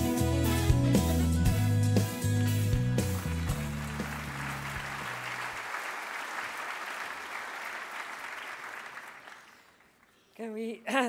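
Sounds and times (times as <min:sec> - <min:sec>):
audience applauding: 0:02.6 - 0:10.1.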